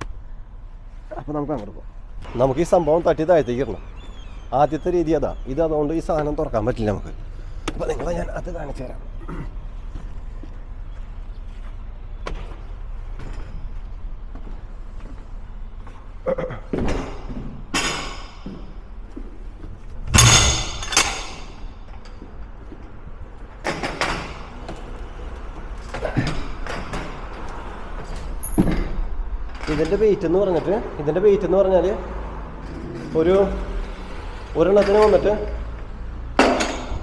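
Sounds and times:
wooden pallets thumping: 19.8s - 21.7s.

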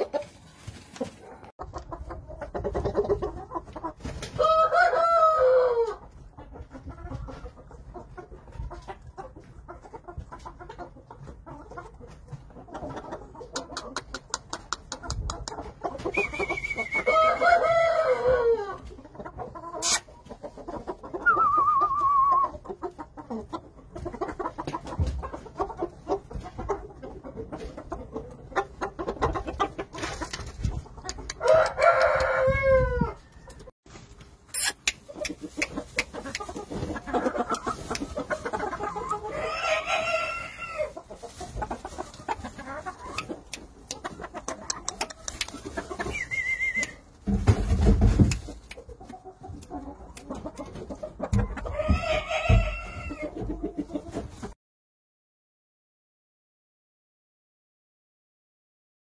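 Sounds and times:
chickens clucking: 0.0s - 54.6s
rooster crowing: 31.4s - 33.6s
short wavering call: 46.1s - 47.0s.

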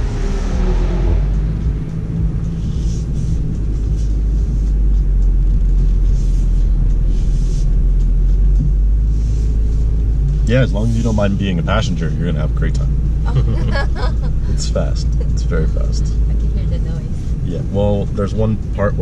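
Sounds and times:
car engine running at low speed: 0.0s - 19.0s.

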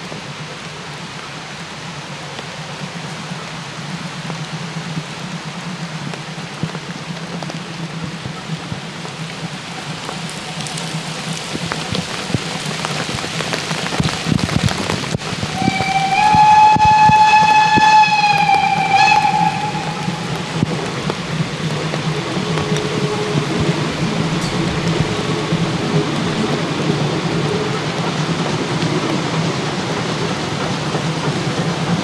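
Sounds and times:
steady rushing noise: 0.0s - 32.0s
steam locomotive whistle: 15.5s - 20.8s, 22.1s - 26.5s.

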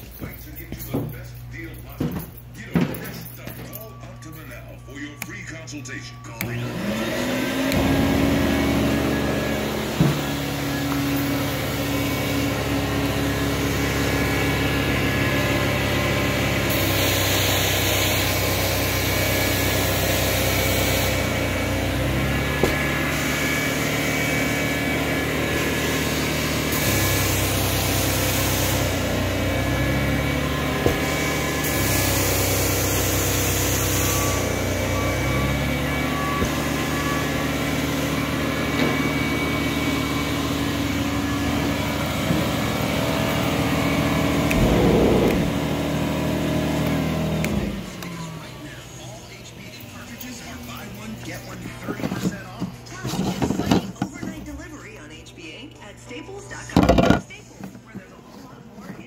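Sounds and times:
carpet cleaning machine vacuum: 6.4s - 49.2s.

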